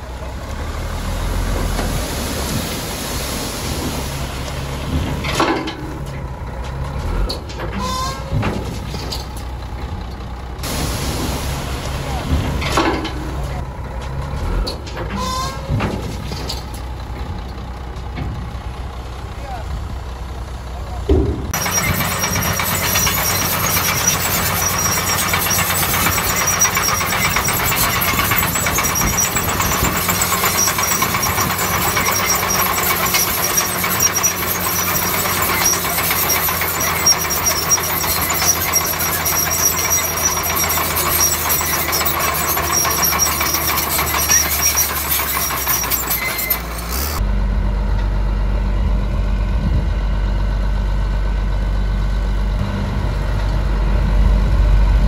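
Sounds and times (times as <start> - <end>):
bulldozer diesel engine under load: 0.0 - 55.0
clanking of tracks: 3.6 - 47.2
deep steady low rumble: 47.2 - 55.0.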